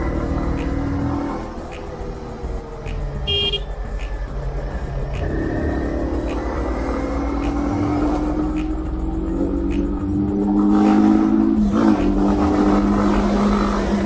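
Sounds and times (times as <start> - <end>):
motorcycle engine revving: 0.0 - 14.0
high horn beep: 3.2 - 3.8.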